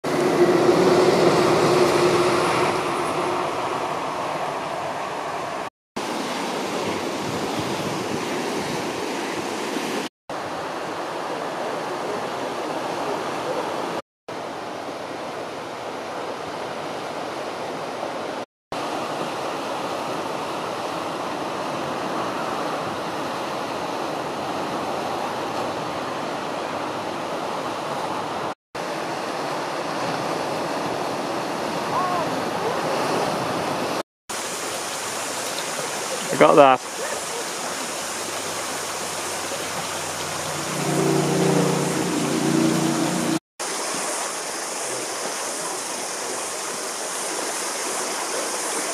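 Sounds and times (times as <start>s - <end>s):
surf washing over rocks: 0.0s - 48.9s.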